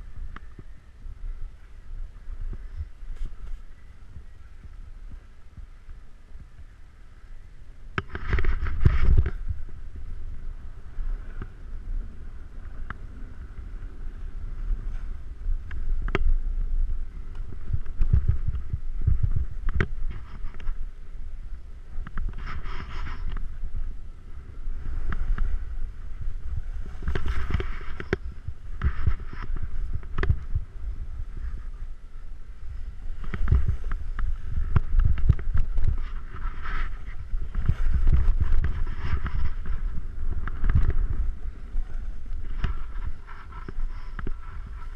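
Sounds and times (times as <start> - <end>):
wind buffeting microphone: 0.0 - 44.9
ski edges scraping snow: 33.0 - 44.9.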